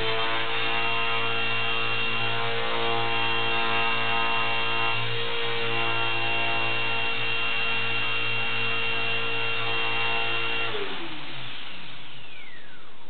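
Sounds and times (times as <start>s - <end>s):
toy helicopter motor and rotor whine: 0.0s - 13.0s.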